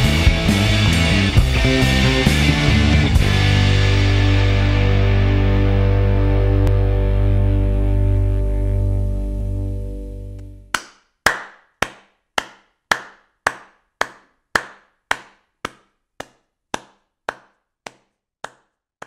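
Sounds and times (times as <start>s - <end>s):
music: 0.0s - 10.7s.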